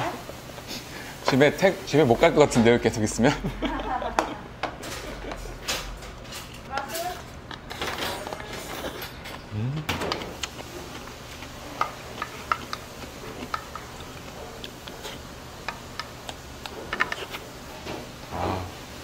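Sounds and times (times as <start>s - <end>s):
utensils clinking against bowls: 4.2s - 9.5s
person humming low: 9.5s - 10.0s.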